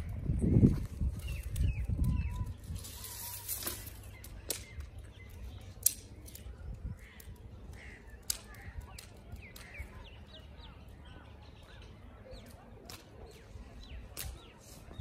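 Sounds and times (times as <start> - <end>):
low rumbling on microphone: 0.0 - 3.6
birds chirping: 0.0 - 15.0.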